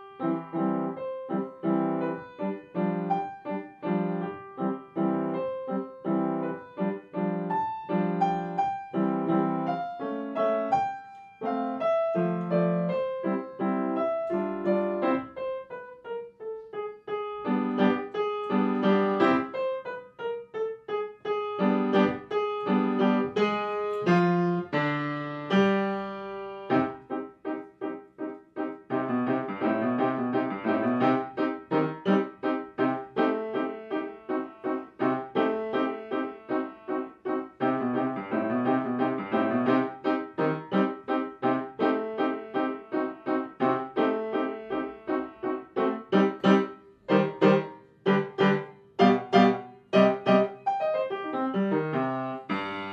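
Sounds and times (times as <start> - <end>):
piano music: 0.0 - 52.9.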